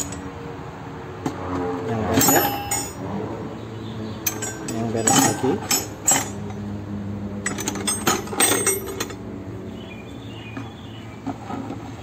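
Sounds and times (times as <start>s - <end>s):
metal wrenches clinking: 0.0s - 0.2s, 2.1s - 3.0s, 4.2s - 6.6s, 7.4s - 9.2s.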